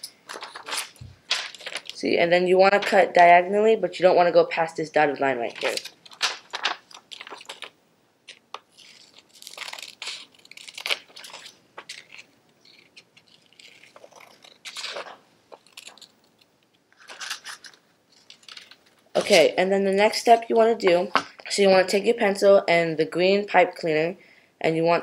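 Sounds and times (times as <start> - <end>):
scissors snipping paper: 8.3 - 16.1.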